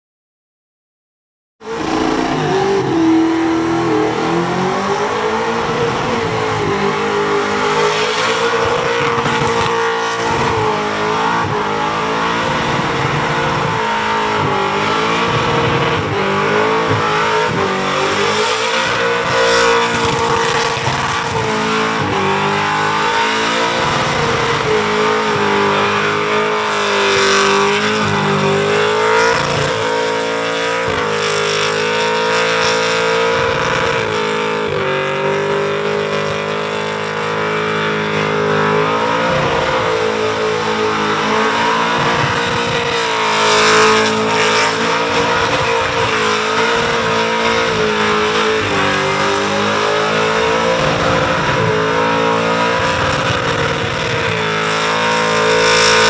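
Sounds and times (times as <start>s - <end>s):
car engine revving high: 1.6s - 56.0s.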